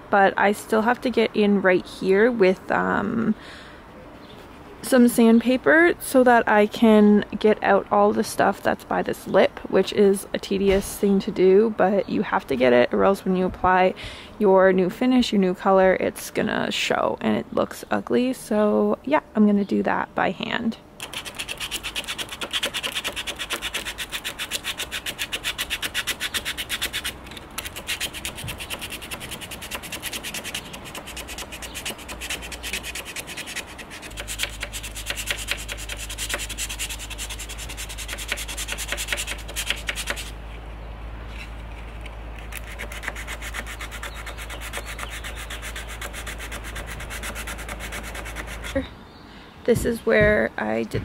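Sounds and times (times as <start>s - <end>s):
sandpaper rasping on wood: 21.0s - 40.3s, 42.6s - 48.8s.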